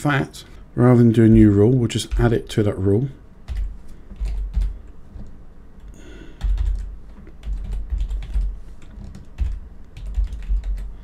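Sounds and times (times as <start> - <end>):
typing on computer keyboard: 3.5 - 4.8, 6.4 - 10.9.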